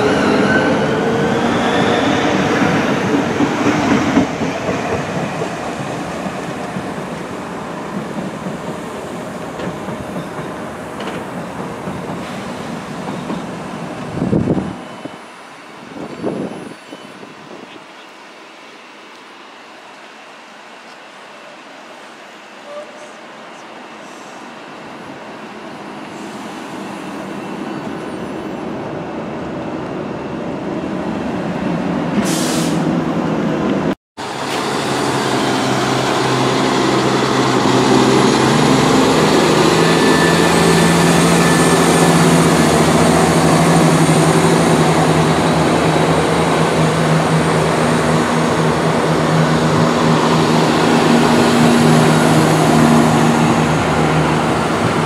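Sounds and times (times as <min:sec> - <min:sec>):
diesel train engines droning: 0:00.0 - 0:55.0
electric train pulling away: 0:34.2 - 0:55.0.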